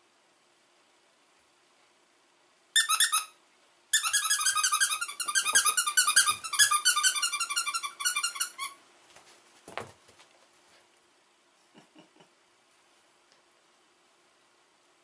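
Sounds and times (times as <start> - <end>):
dog toy squeaking: 2.8 - 3.4, 4.0 - 8.8.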